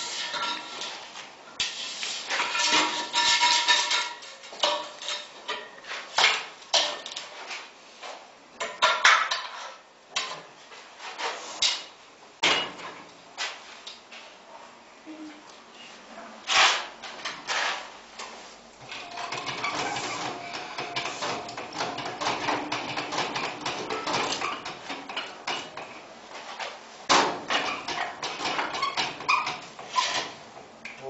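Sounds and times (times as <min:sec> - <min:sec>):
metallic clanks and rattles: 0:18.9 - 0:26.0.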